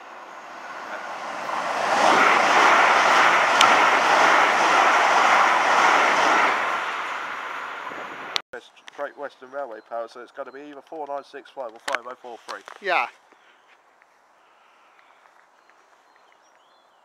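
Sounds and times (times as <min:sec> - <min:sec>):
electric train passing at speed: 0:00.0 - 0:08.4.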